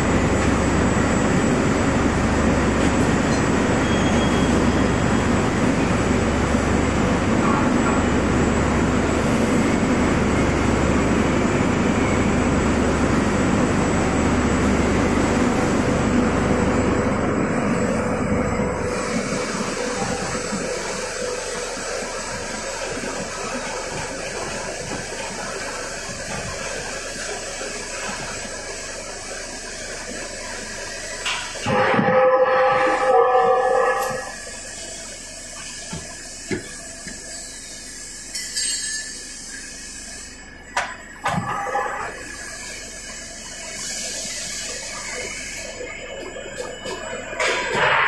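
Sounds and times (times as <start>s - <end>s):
low machine hum: 0.0s - 37.3s.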